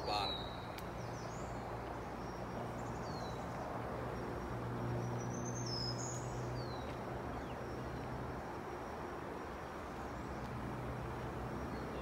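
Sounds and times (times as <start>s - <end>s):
songbird chirps: 0.0s - 12.0s.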